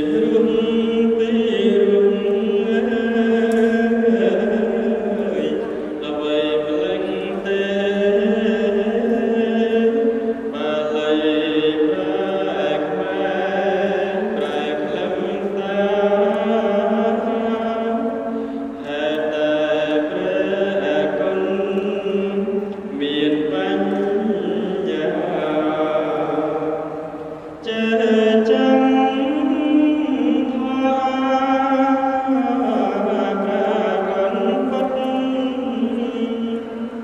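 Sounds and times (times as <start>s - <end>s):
man chanting into a microphone: 0.0s - 37.0s.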